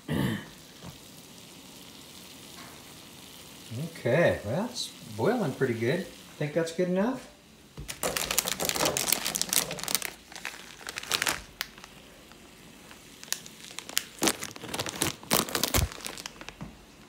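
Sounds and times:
plastic wrapper crinkling: 7.8s - 16.7s.

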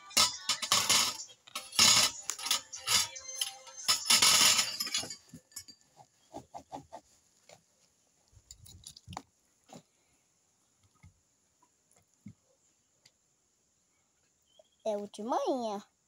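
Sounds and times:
knife scraping metal plate: 0.0s - 5.6s
clatter: 0.1s - 5.8s.

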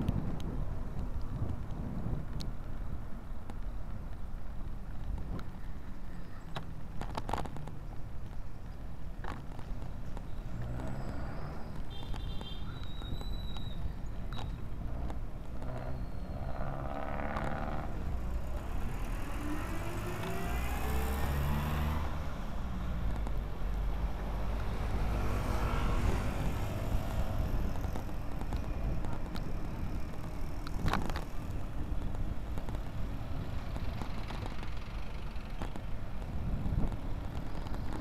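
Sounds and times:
traffic rumble: 0.0s - 38.0s
engine revving up: 18.7s - 22.4s.

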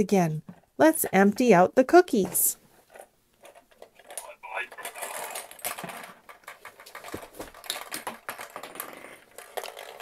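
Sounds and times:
plastic toy pieces clattering: 2.9s - 10.0s.

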